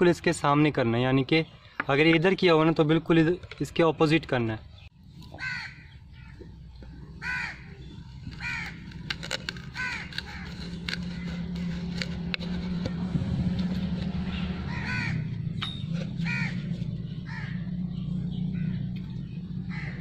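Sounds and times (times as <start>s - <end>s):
crow cawing: 5.3s - 6.3s, 7.2s - 9.0s, 9.7s - 10.5s, 14.6s - 15.4s, 16.2s - 17.7s, 19.7s - 20.0s.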